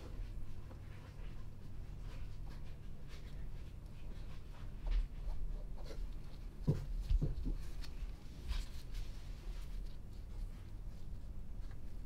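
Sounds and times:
steady low hum: 0.0 - 12.0
soft handling knocks: 4.6 - 8.8.

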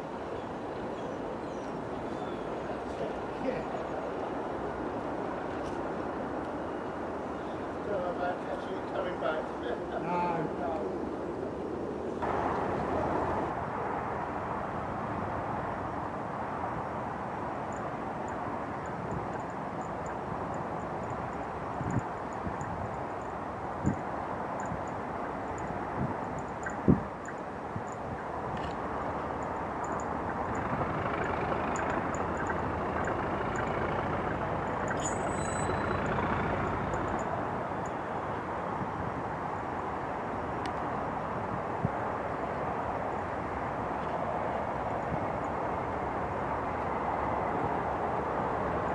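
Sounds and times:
diesel locomotive engine running: 29.2 - 37.4.

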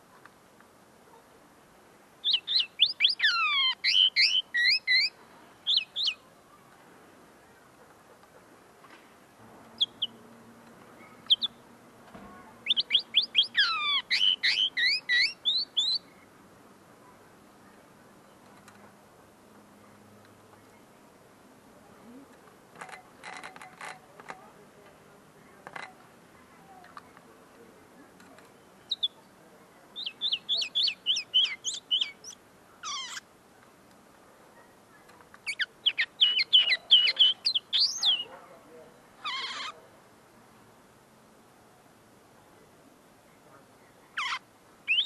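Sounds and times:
bird twittering song: 2.2 - 6.3, 9.7 - 10.2, 10.9 - 11.6, 12.6 - 16.4, 28.5 - 29.2, 29.9 - 33.3, 35.4 - 38.3, 44.1 - 45.0.

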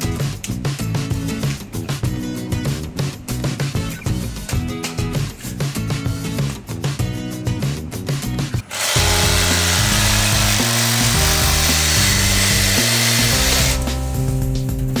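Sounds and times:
background music: 0.0 - 15.0
reciprocating saw cutting plastic pipe: 8.6 - 14.0.

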